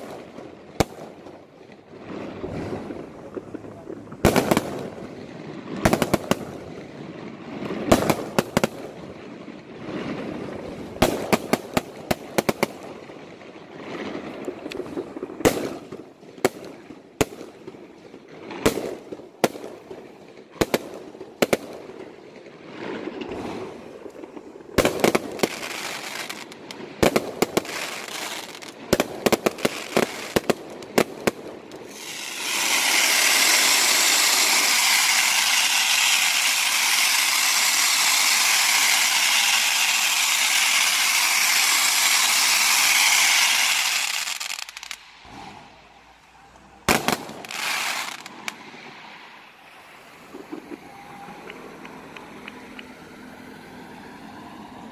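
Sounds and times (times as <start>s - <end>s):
rumbling: 2.0s - 5.0s
fireworks hissing rush: 22.8s - 54.9s
firework shells bursting: 23.1s - 45.9s, 46.8s - 48.7s.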